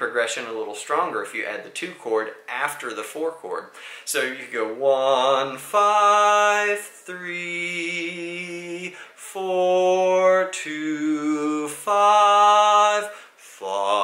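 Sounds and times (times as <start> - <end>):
man singing long held notes: 4.0 - 14.0.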